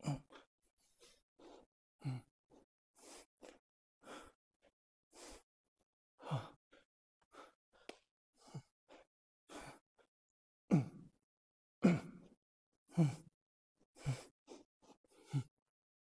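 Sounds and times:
man breathing hard: 0.0s - 5.5s, 6.2s - 10.1s, 11.8s - 13.3s, 14.0s - 15.5s.

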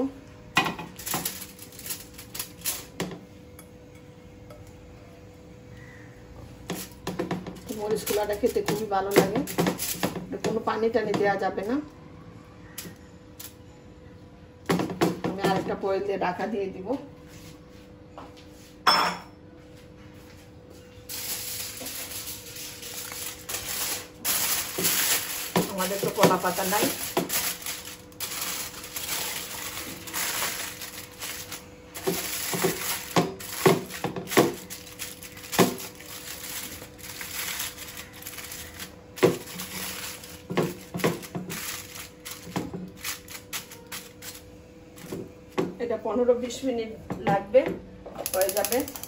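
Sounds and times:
aluminium foil crinkling: 0.8s - 3.1s, 6.7s - 11.7s, 21.1s - 45.3s, 48.2s - 49.0s.

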